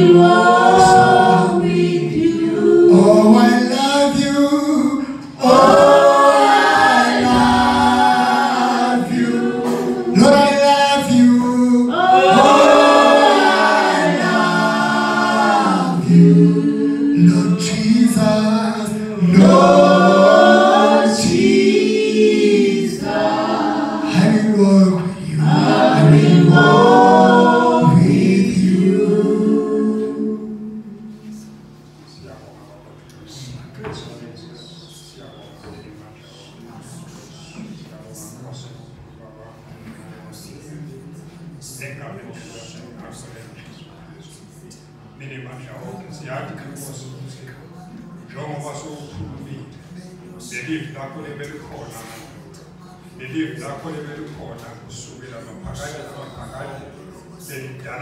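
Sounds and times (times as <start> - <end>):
gospel choir singing: 0.0 - 31.8.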